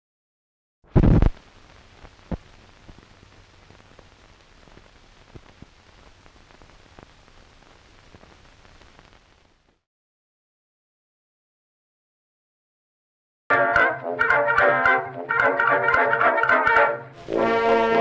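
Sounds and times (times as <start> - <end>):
film crackle and pops: 0.9 - 9.8.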